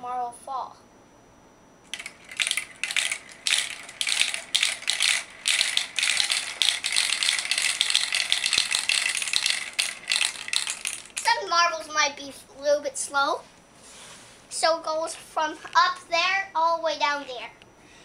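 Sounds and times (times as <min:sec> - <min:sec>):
marbles rattling down plastic tubes: 0:01.9 - 0:11.5.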